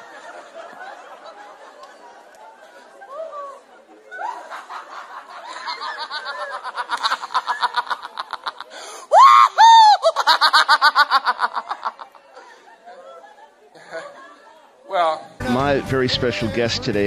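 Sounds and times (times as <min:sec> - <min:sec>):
person laughing in high peals: 0:04.2 - 0:12.2
person shrieking: 0:09.1 - 0:10.2.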